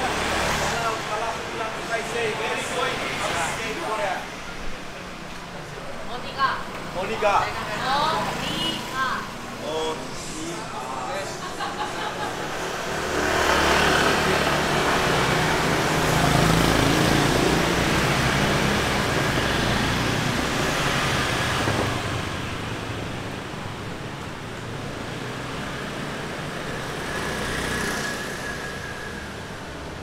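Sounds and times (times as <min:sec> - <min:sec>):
street traffic hum: 0:00.0 - 0:30.0
motor scooter engine: 0:11.6 - 0:30.0.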